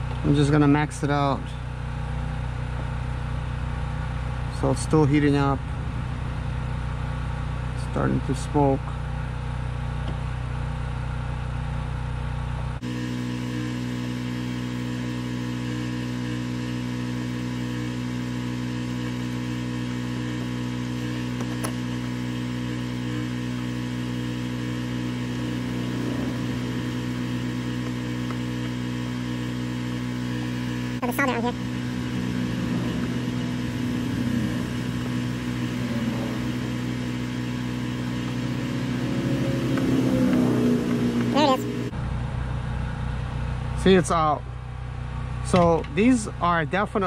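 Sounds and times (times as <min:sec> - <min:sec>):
motor humming: 0:18.6 - 0:41.9.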